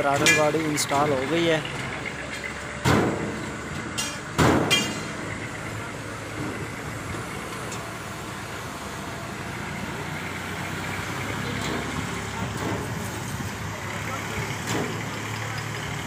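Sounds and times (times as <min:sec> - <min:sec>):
steady background noise: 0:00.0 - 0:16.0.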